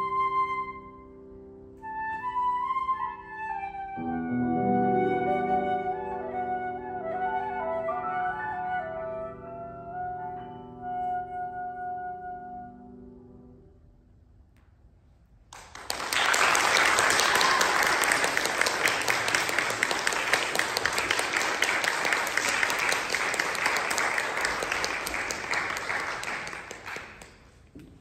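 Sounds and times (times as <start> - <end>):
audience applauding: 15.5 - 27.6.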